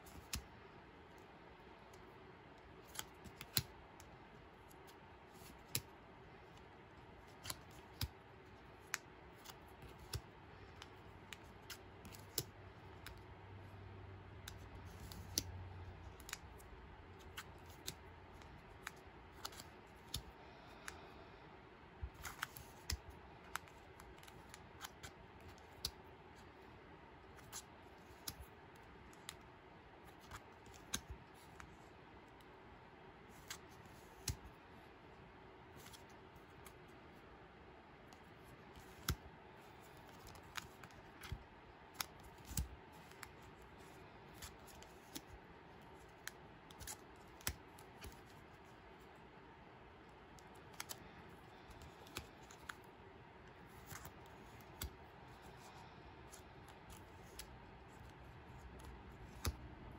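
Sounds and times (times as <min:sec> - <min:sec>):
plastic card clicks and taps: 0:56.3 - 0:59.7.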